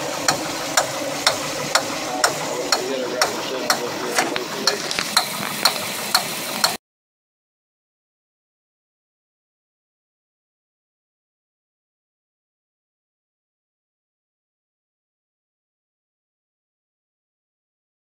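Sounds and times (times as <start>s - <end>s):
boat engine running: 0.0s - 6.8s
engine valve ticking: 0.0s - 6.8s.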